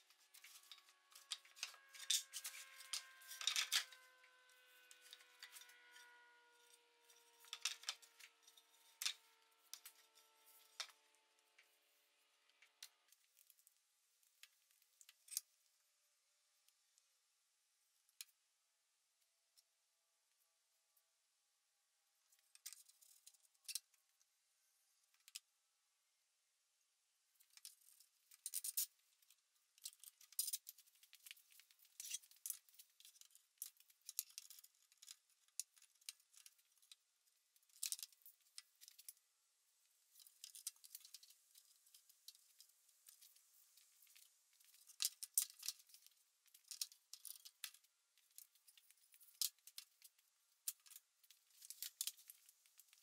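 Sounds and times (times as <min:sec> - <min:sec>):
metal bar clamps being handled: 0:00.3 - 0:11.0, 0:29.8 - 0:37.0.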